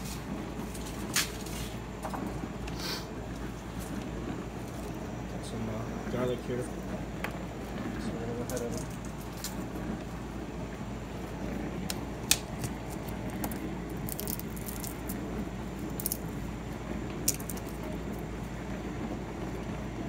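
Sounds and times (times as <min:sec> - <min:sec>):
low hum: 0:00.0 - 0:20.0.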